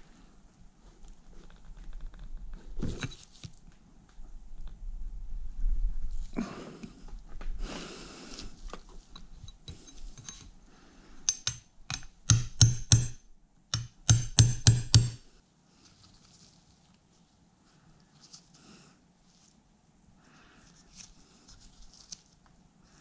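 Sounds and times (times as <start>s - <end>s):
scraping and rustling: 0.8s - 3.7s, 15.7s - 19.7s, 20.7s - 22.6s
sharp metallic knocks and clicks: 11.2s - 15.2s.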